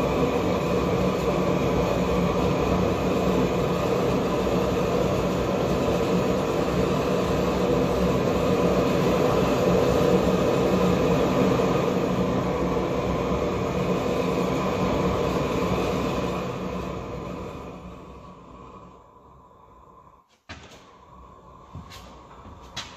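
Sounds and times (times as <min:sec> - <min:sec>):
propane torch roaring: 0:00.0 - 0:22.9.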